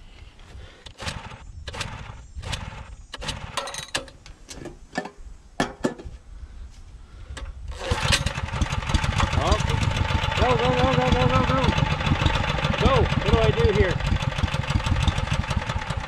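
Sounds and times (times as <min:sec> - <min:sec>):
generator engine starting: 0:00.8 - 0:04.0, 0:07.7 - 0:16.0.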